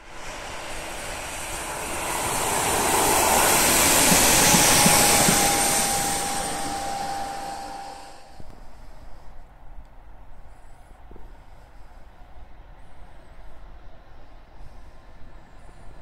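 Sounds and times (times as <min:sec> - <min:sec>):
faint high whine: 0:00.0 - 0:09.5
train passing by: 0:00.0 - 0:16.0.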